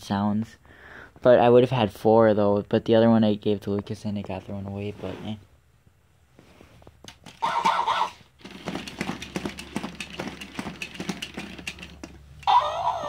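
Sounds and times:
robot toy legs clicking: 7.0s - 12.6s.

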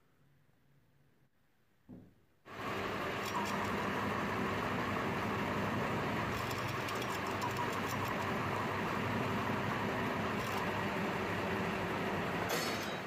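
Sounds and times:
lathe running: 2.5s - 12.5s.

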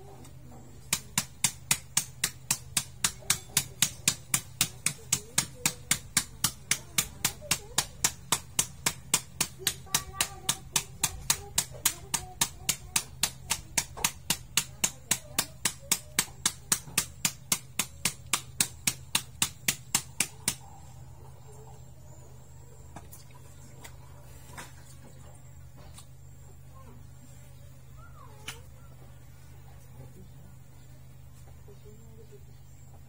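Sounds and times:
wooden stick pounding meat on board: 0.9s - 20.7s.

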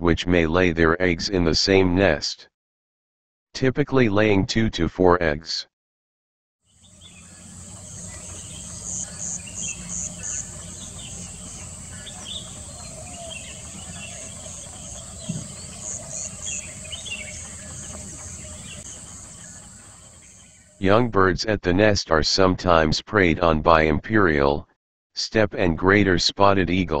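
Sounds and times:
insects droning and chirping: 6.7s - 20.8s
small birds chirping: 6.7s - 20.8s.

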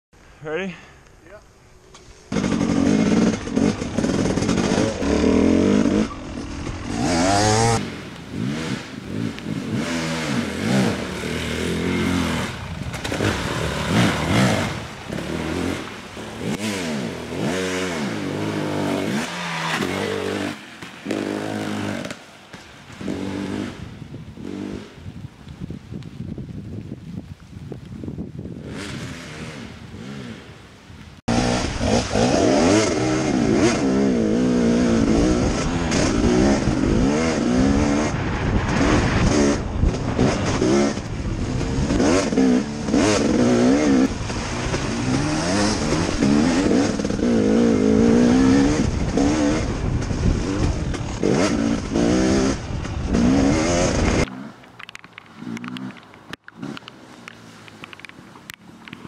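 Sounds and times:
dirt bike engine revving: 2.3s - 25.0s, 28.6s - 30.5s, 31.3s - 54.6s.

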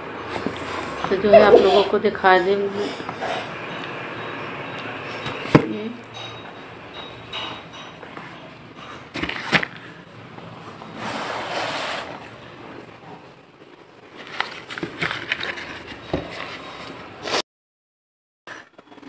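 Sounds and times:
paper rustle: 14.1s - 17.0s.

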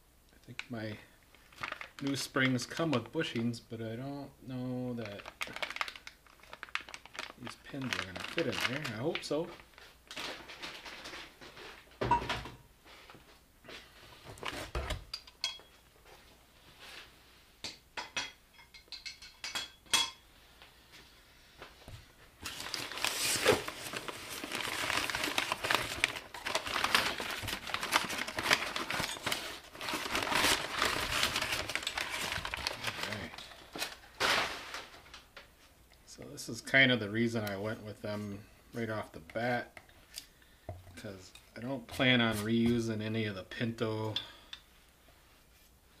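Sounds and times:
packing paper crinkling: 1.3s - 3.4s, 5.0s - 11.9s, 22.4s - 35.4s.

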